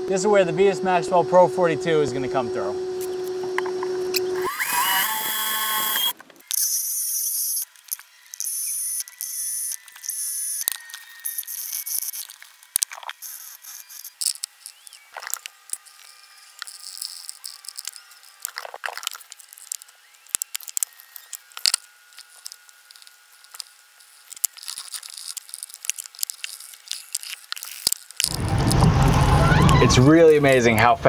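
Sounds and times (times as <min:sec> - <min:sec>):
plastic parts clicking and rustling: 0:06.0 - 0:28.3.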